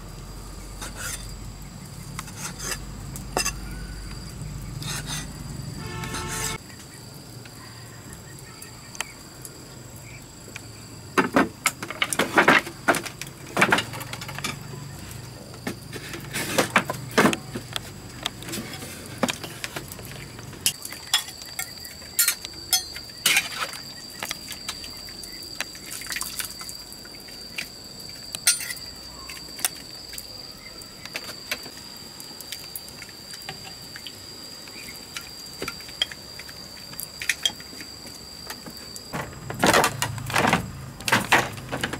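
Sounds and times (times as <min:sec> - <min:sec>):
water splashing: 0:23.6 - 0:27.4
ladle clinking: 0:28.4 - 0:28.8.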